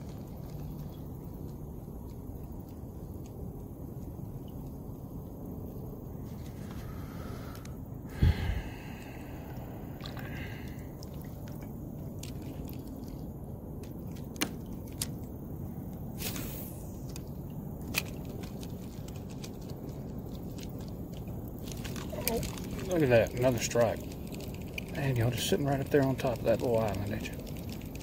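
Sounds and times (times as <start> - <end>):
steady low rumble: 0.0 - 28.0
brief hiss: 16.2 - 17.1.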